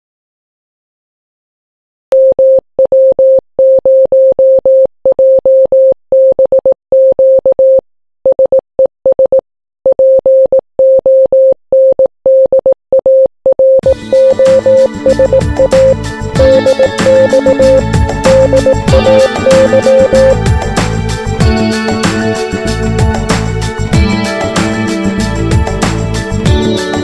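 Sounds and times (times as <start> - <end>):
morse code beeps: 2.1 - 20.4
music: 13.8 - 27.0.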